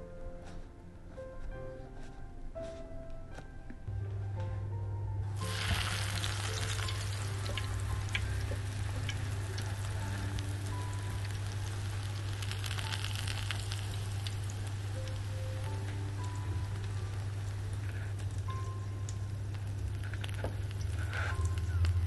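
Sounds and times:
tortilla sizzling in oil: 0:05.4 - 0:22.0.

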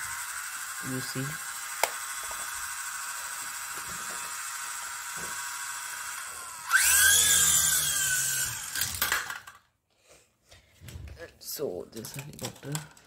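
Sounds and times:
toy helicopter motors whining: 0:00.0 - 0:09.6.

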